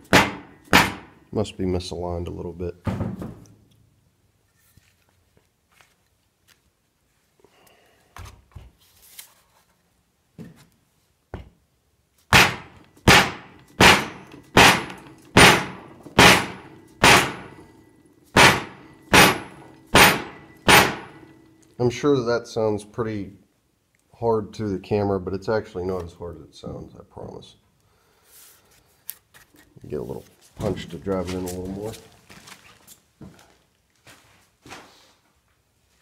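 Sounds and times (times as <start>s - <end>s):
hammer striking metal pin: 0.0s - 1.2s, 12.3s - 21.4s.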